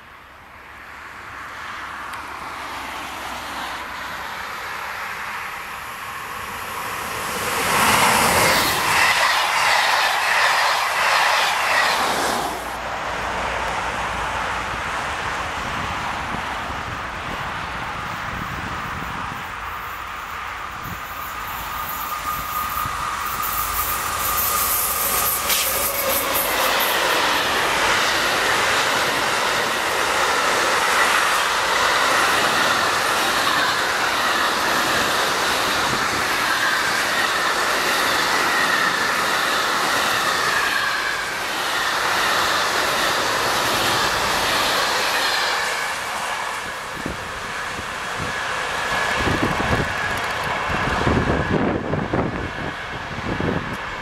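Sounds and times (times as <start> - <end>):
high wheel squeal: 7.4 - 12.6, 19.0 - 50.3
freight train wheels clattering on rails: 20.8 - 54.0.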